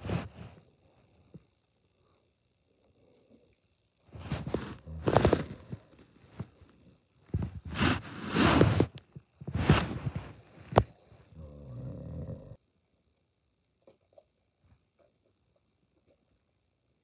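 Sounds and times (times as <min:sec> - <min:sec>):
fabric rustling and swishing: 0:07.4 - 0:10.7.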